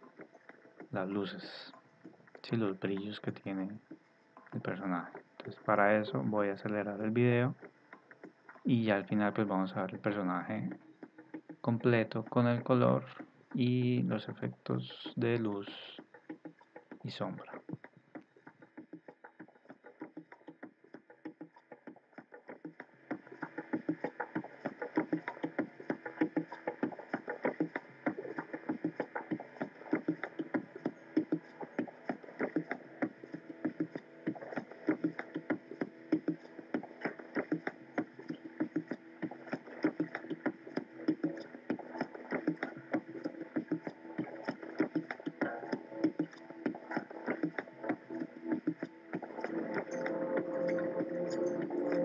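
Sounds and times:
music with quick rhythmic beat: 0.0 - 52.0.

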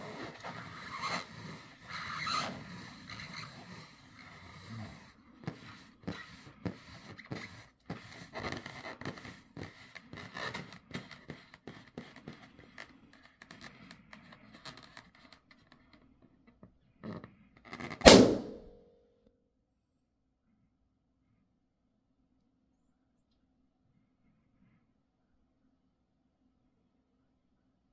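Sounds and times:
balloon scratching and squeaking: 0.0 - 16.0, 17.0 - 18.1
balloon bursting pop: 18.0 - 18.7.

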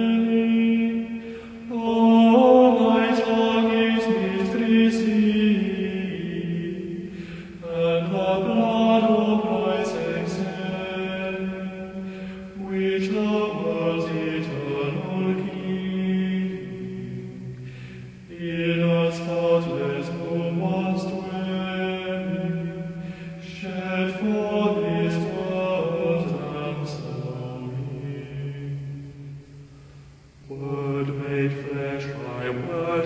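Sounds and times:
slow chanted hymn: 0.0 - 33.0.

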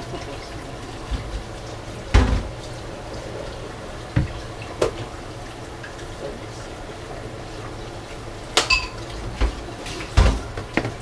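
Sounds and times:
low steady hum: 0.0 - 11.0
knocks at a kitchen sink: 2.1 - 2.5, 10.2 - 11.0.

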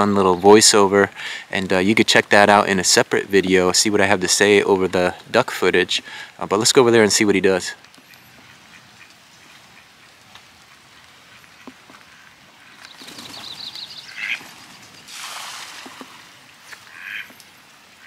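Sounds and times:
duck wings flurry: 11.3 - 17.4
duck splashing onto water: 11.6 - 17.4
duck quack: 14.0 - 14.4, 16.8 - 17.3.

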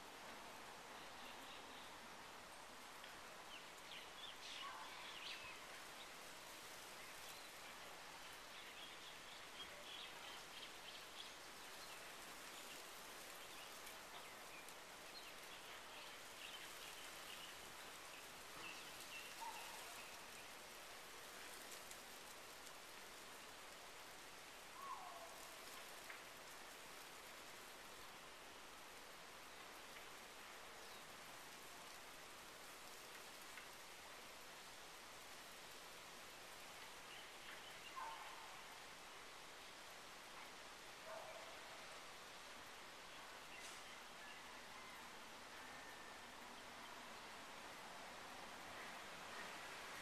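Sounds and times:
rain on vegetation: 0.0 - 50.0
falling bird calls: 24.7 - 26.2.

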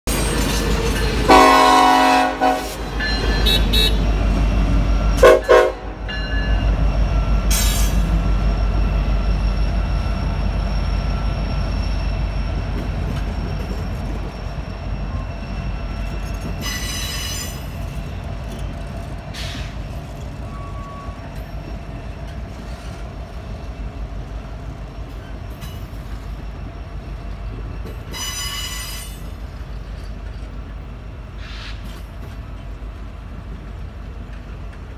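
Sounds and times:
train horn: 1.3 - 4.1, 5.2 - 6.0
high wheel squeals: 6.1 - 23.0.

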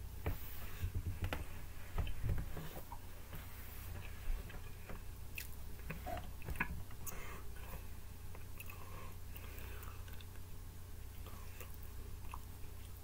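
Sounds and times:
low steady hum: 0.0 - 13.0
person chewing: 5.3 - 10.5, 11.1 - 13.0.

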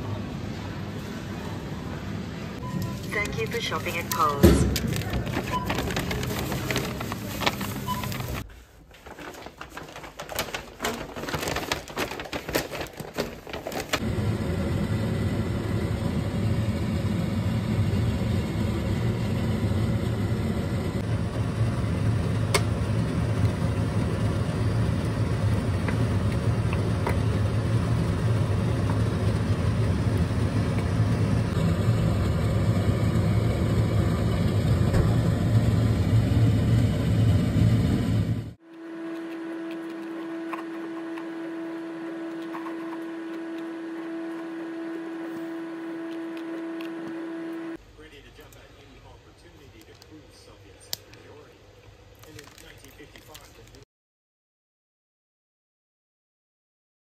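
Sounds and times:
low mechanical hum: 0.0 - 53.8
handling noise: 2.8 - 14.0.

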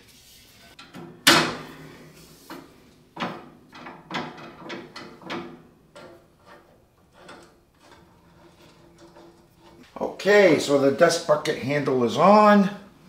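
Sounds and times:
metal handle clanking on frame: 3.1 - 9.9.

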